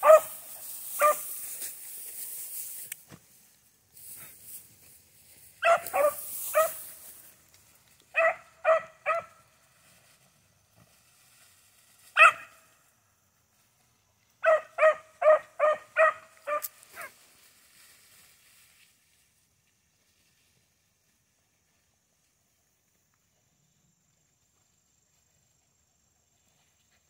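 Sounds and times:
puppy barking: 0.0 - 0.3, 1.0 - 1.3, 5.6 - 6.8, 8.1 - 9.4, 12.2 - 12.6, 14.4 - 17.1.

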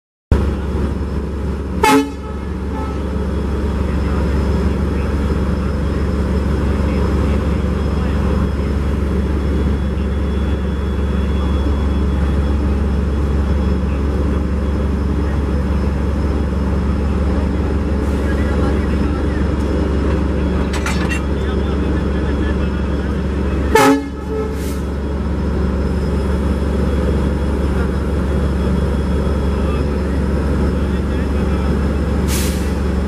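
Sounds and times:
locomotive engine droning: 0.3 - 33.0
train horn toot: 1.8 - 3.3, 23.7 - 24.8.

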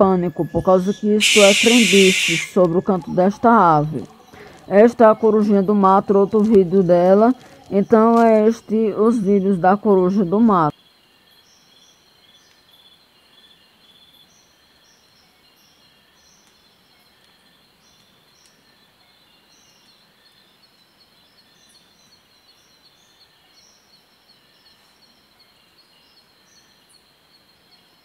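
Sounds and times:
insect chirps: 0.0 - 28.0
insect buzzing: 1.2 - 2.6.

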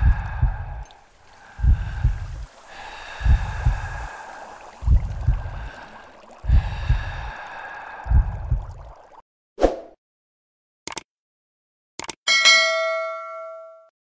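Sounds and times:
steady hiss: 0.8 - 7.8.

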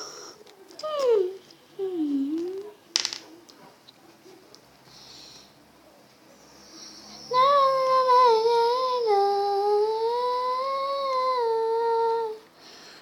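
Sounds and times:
girl humming: 0.8 - 2.7, 7.3 - 12.4.

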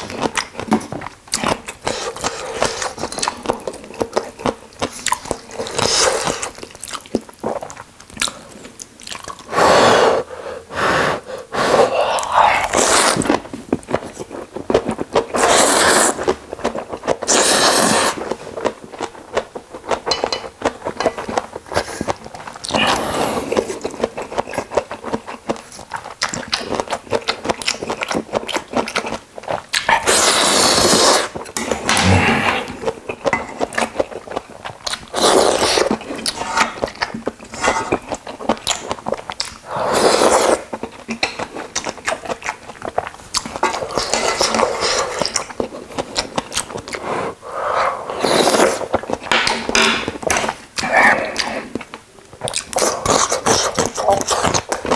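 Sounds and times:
wet chewing: 0.0 - 9.5, 11.9 - 47.4, 48.0 - 54.9
noodle slurping: 9.4 - 13.4, 15.2 - 18.4, 30.0 - 31.4, 39.6 - 40.7.

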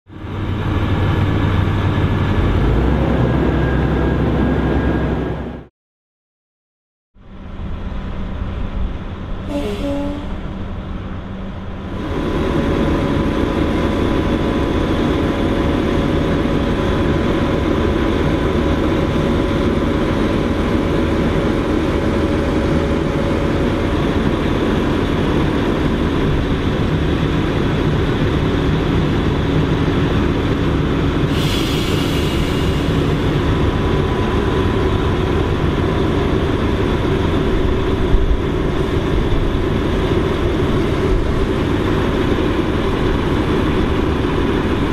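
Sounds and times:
diesel engine under load: 0.1 - 5.7, 7.2 - 44.9
brief hiss: 31.3 - 33.4.

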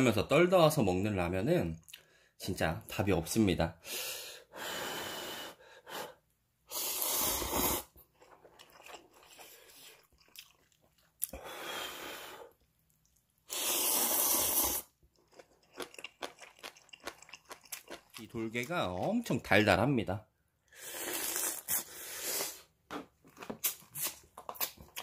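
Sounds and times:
person slurping noodles: 6.7 - 8.0, 13.5 - 15.0, 20.8 - 22.7
quiet chewing: 8.0 - 11.4, 12.5 - 13.4, 15.1 - 19.4.

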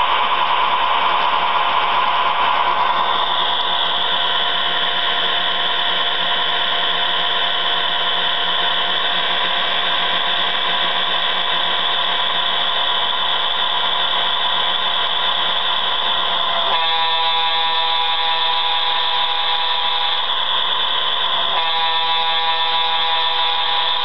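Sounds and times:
model locomotive diesel engine sound: 0.0 - 24.0.

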